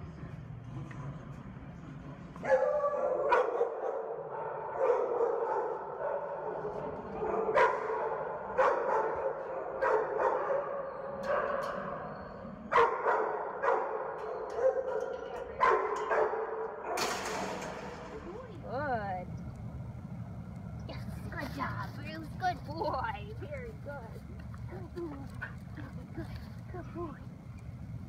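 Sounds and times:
dogs barking: 2.4s - 18.5s.

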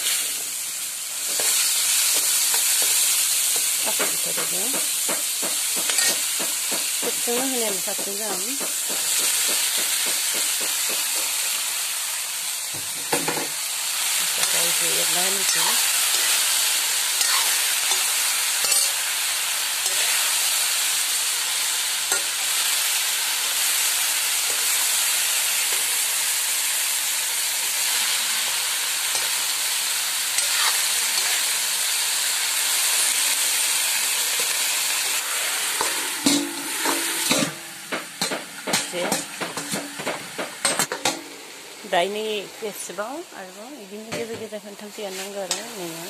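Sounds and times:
vegetables sizzling in oil: 0.0s - 46.0s
metal spoon clinking on wok: 18.7s - 19.0s.

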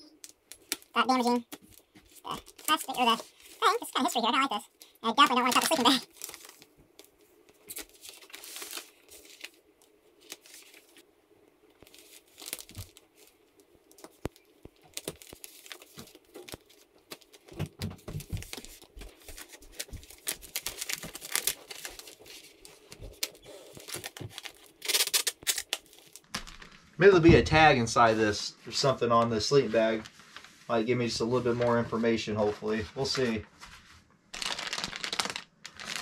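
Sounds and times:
plastic packaging crinkling and tearing: 0.2s - 11.0s, 11.6s - 27.0s, 34.3s - 36.0s.

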